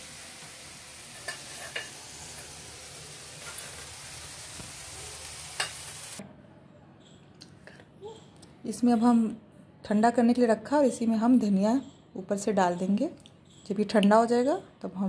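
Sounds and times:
vegetables sizzling in a pan: 0.0s - 6.2s.

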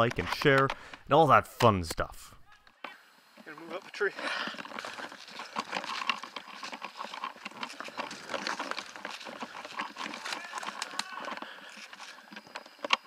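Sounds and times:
footsteps on dry twigs and leaves: 3.4s - 13.0s.

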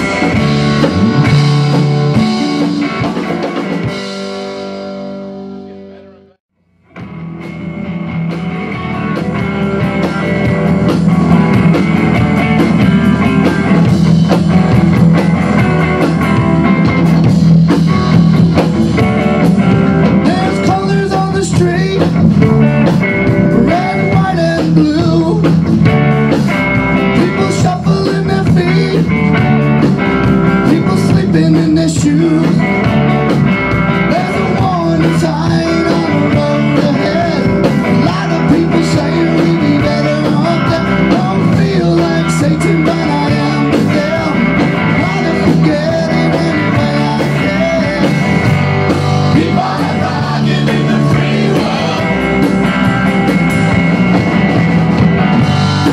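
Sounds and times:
drum kit steady beat: 0.0s - 6.1s, 6.8s - 55.9s
electric bass: 0.0s - 55.9s
electric guitar: 0.0s - 55.9s
man singing: 20.2s - 22.3s, 23.5s - 25.6s, 27.1s - 29.3s, 30.6s - 32.7s, 34.0s - 48.6s, 49.2s - 52.5s.

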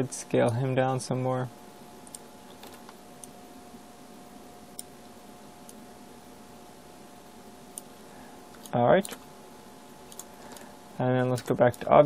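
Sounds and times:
steady low hum: 0.0s - 12.0s
computer mouse clicks: 10.1s - 10.6s.

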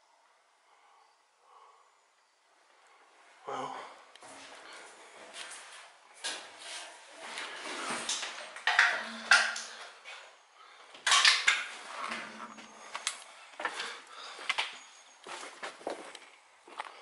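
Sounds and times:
footsteps scuffing on gritty floor: 15.2s - 17.0s.

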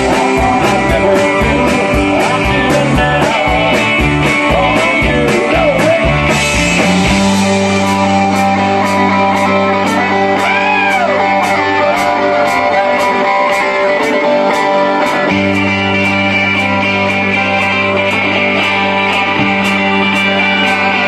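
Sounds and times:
electric guitar lead: 0.0s - 21.0s
low bass: 0.0s - 21.0s.

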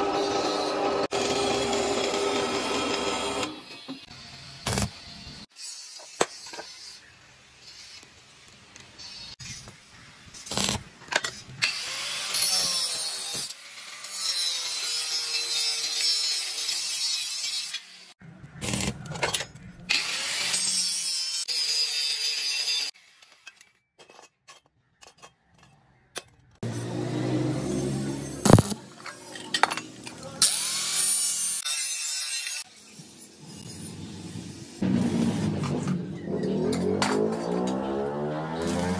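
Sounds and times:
angle grinder cutting steel: 0.0s - 8.1s, 11.6s - 18.9s, 19.9s - 23.5s, 26.6s - 33.9s, 34.7s - 38.9s.

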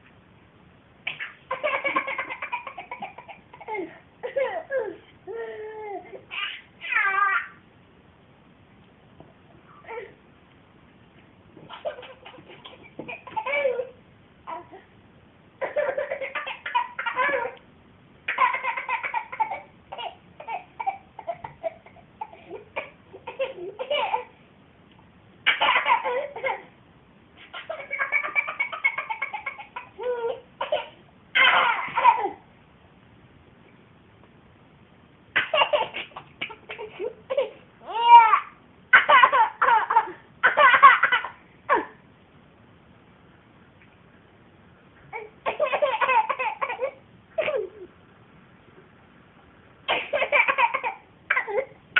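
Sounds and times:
toddler giggling: 1.1s - 7.6s, 11.6s - 14.9s, 15.6s - 17.6s, 18.3s - 24.4s, 25.5s - 26.7s, 27.4s - 32.4s, 35.4s - 42.0s, 45.1s - 47.9s, 50.0s - 51.8s.

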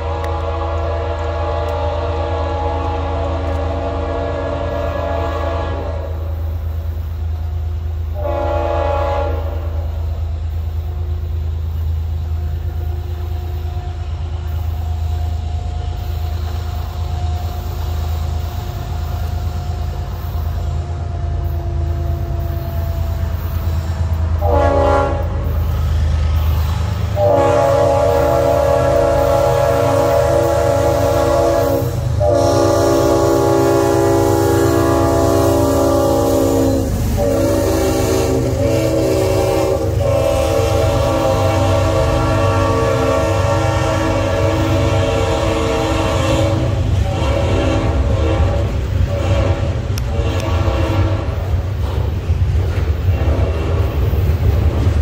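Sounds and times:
locomotive air horn blasts: 0.0s - 6.5s, 8.1s - 10.1s, 21.0s - 25.7s, 27.0s - 51.6s, 53.0s - 54.2s
low rumble of train: 0.0s - 55.0s.

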